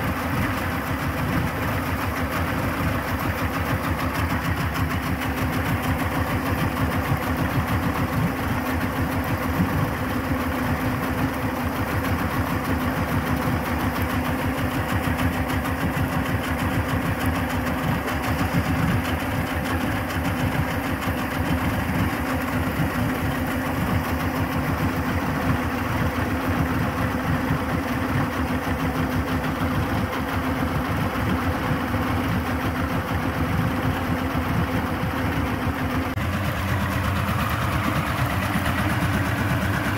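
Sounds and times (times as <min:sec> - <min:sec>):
outboard motor idling: 0:00.0 - 0:39.9.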